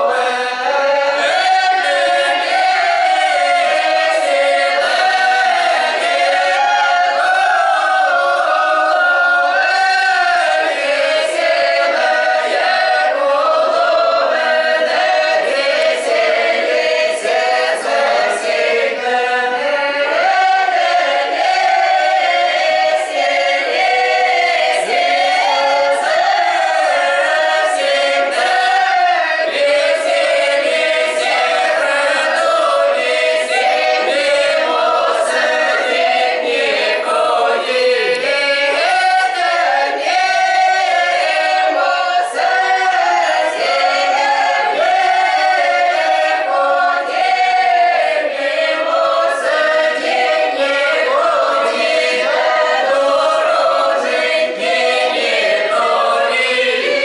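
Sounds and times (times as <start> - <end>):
mixed choir singing unaccompanied: 0.0 - 57.0.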